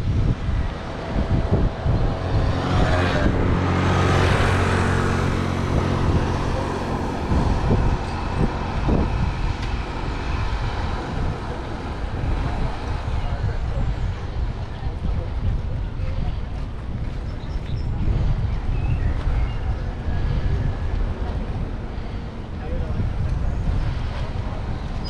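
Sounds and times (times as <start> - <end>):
vehicle passing close by: 0.0 - 15.0
street traffic noise: 0.0 - 25.0.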